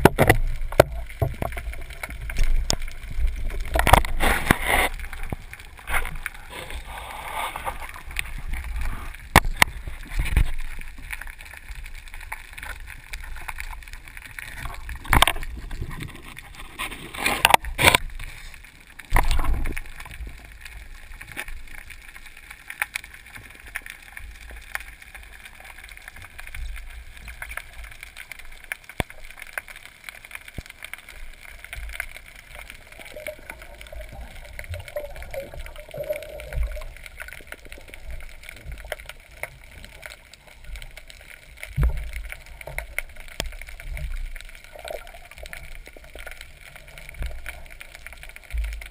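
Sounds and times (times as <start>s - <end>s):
muffled underwater noise: 0.0s - 12.7s, 28.8s - 48.9s.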